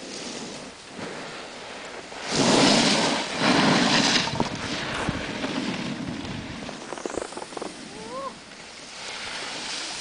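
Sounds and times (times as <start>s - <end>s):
wind on microphone: 0.0s - 10.0s
edges carving across snow: 2.2s - 10.0s.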